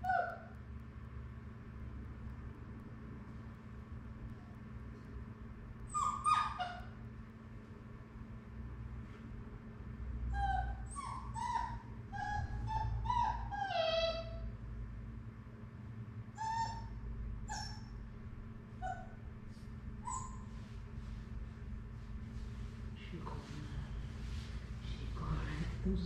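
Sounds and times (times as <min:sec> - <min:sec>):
puppy whining: 0:00.0 - 0:00.5, 0:05.8 - 0:07.0, 0:10.3 - 0:14.5, 0:16.3 - 0:18.0, 0:18.8 - 0:19.3, 0:20.0 - 0:20.7.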